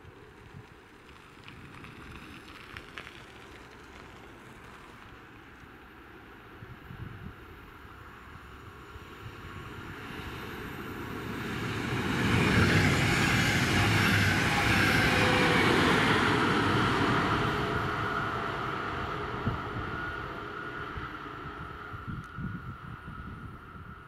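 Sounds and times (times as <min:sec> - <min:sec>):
train passing on rails: 0:00.0 - 0:24.0.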